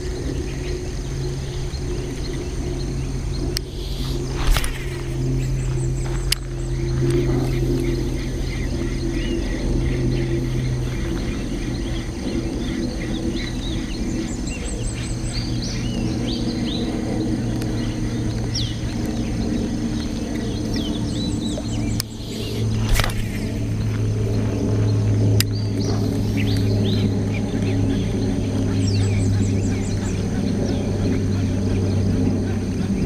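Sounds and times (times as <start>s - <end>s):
steady low hum: 0.0s - 33.0s
bird chirps and calls: 0.1s - 33.0s
sharp click: 22.8s - 24.0s.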